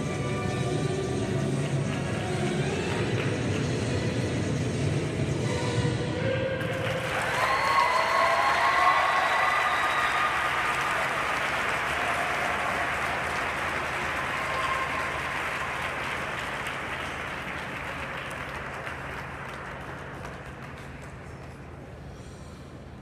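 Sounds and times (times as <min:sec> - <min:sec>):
audience applauding: 0:06.6 - 0:21.8.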